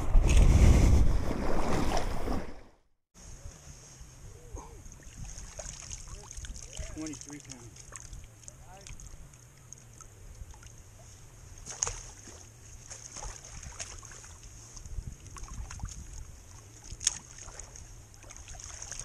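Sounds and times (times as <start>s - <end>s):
wind rumble on microphone: 0.0s - 2.5s, 13.4s - 18.1s
lake water lapping and splashing: 1.2s - 2.7s, 4.8s - 19.0s.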